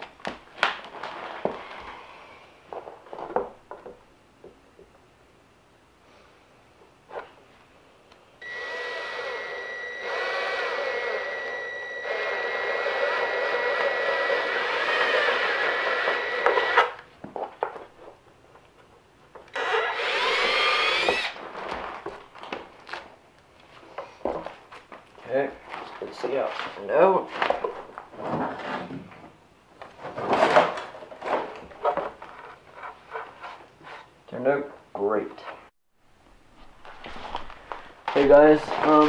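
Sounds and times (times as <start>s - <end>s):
cordless drill boring plastic: 8.4s - 17.0s, 19.5s - 21.4s.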